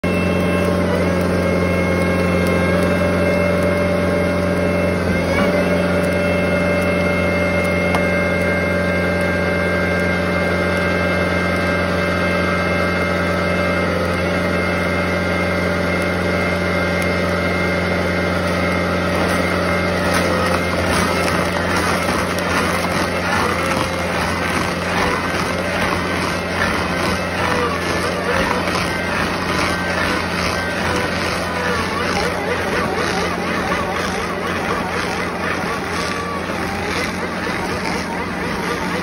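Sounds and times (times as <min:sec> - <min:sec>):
diesel engine running: 0:00.0 - 0:39.0
high-pitched grinder tones: 0:00.0 - 0:39.0.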